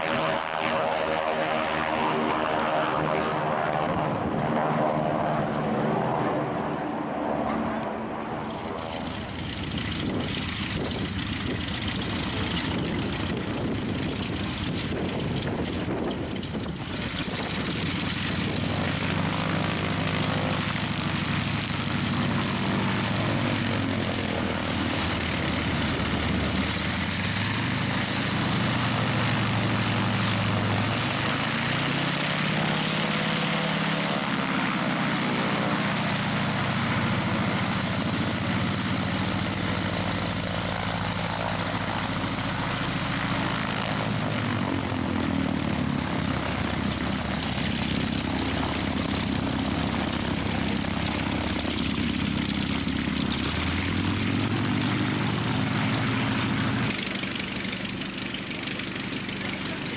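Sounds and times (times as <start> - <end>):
radial aircraft engine taxiing: 0.0 - 59.9
wind buffeting microphone: 8.9 - 19.4.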